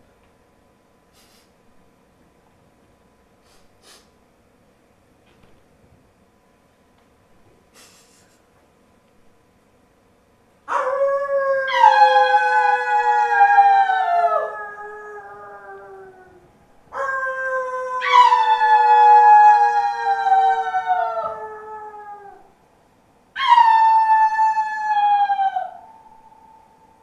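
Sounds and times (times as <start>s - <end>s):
howl-like tones sliding down: 10.9s - 22.6s, 23.4s - 27.0s.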